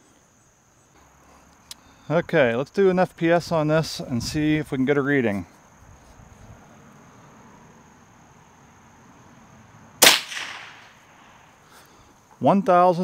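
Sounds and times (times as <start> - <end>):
air rifle shot: 10.0 - 11.4.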